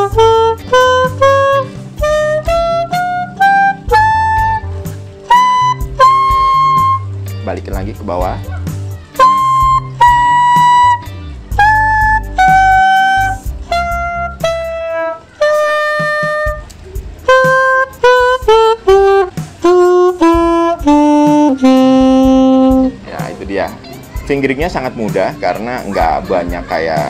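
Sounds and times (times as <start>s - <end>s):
reed wind instrument playing scale: 0.0s - 23.8s.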